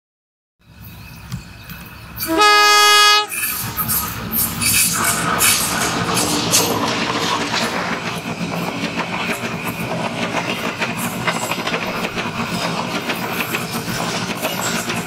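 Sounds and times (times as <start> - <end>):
rumble of wheels on track: 0.6 - 15.0
train wheels clattering over rail joints: 3.3 - 15.0.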